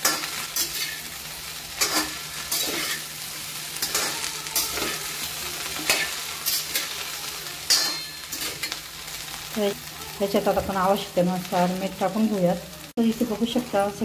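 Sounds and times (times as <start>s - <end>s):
okra sizzling in oil: 0.0s - 14.0s
metal spatula scraping pan: 1.8s - 3.1s, 3.8s - 7.0s, 7.6s - 8.8s.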